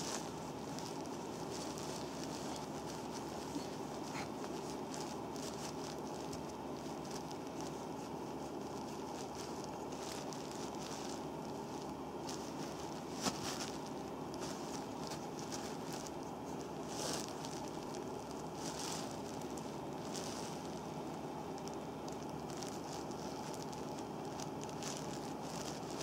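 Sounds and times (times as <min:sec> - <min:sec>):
background hiss: 0:00.0 - 0:26.0
hands rubbing a bare foot: 0:00.0 - 0:26.0.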